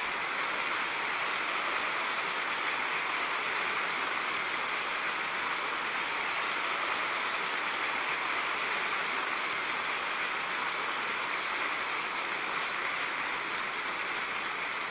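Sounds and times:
audience applauding: 0.0s - 14.9s.

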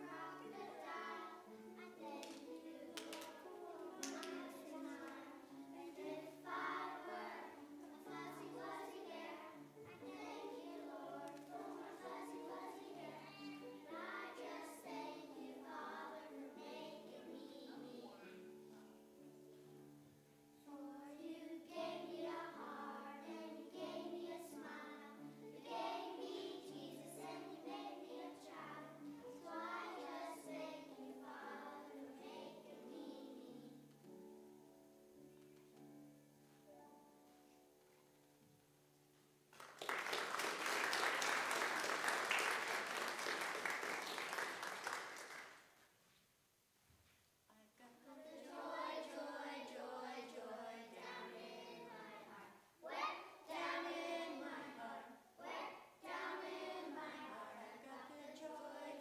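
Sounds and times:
children singing: 0.0s - 18.4s, 20.7s - 33.8s, 48.1s - 59.0s
congregation applauding: 39.5s - 45.7s.

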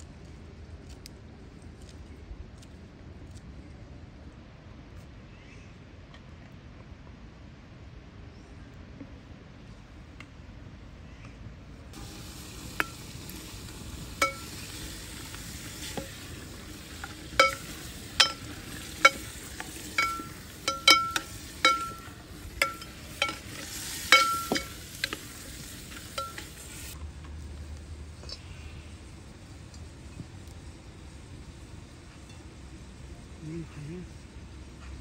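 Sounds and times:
chicken sizzling in a pan: 11.9s - 27.0s
metal spoon clinking on pan: 14.2s - 14.8s, 17.0s - 25.2s, 25.9s - 26.6s.

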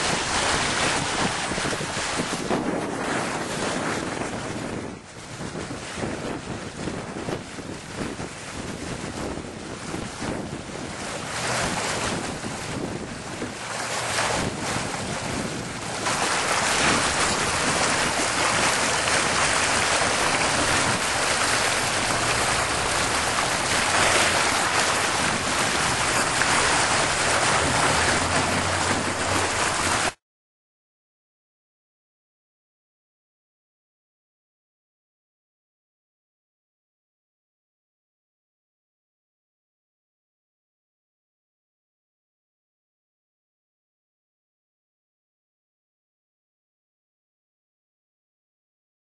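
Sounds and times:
water rushing out of a culvert: 0.0s - 30.2s
wind buffeting microphone: 0.0s - 30.2s.

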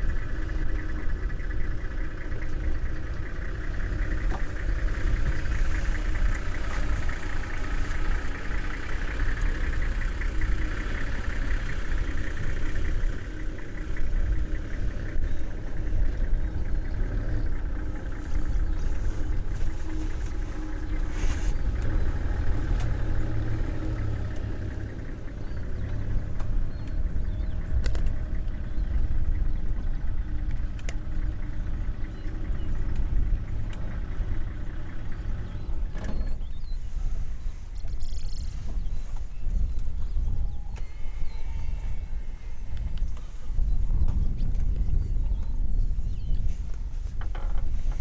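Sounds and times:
vehicle engine idling: 0.0s - 48.0s.

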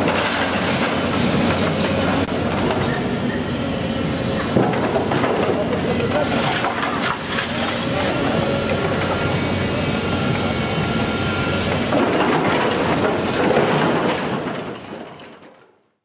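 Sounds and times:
clatter of steel and debris: 0.0s - 3.0s, 4.6s - 7.9s, 11.8s - 15.9s
excavator engine and hydraulics: 0.0s - 14.9s.

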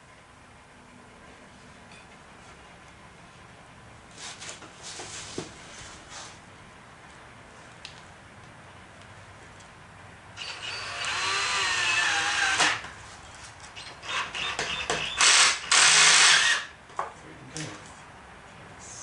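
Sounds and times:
power drill drilling into wood: 10.4s - 12.8s, 14.0s - 16.7s.

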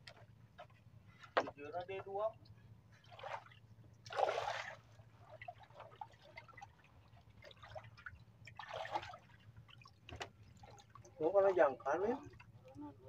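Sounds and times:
water splashing: 3.0s - 12.9s.

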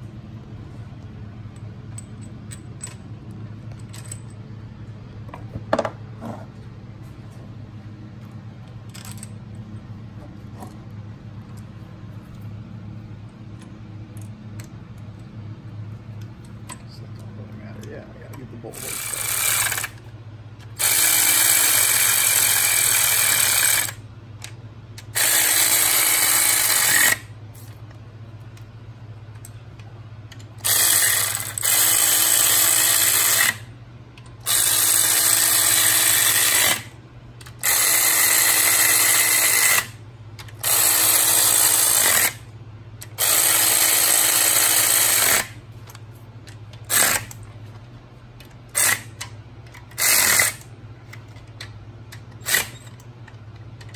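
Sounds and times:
electric ratchet spinning nuts: 18.7s - 20.0s, 20.6s - 24.0s, 25.0s - 27.3s, 30.6s - 33.7s, 34.4s - 45.6s, 46.8s - 47.4s, 48.7s - 50.7s, 52.4s - 53.0s.

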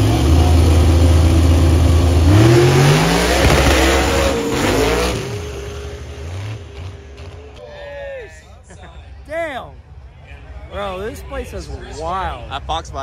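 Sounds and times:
drag car engines revving: 0.0s - 7.6s.

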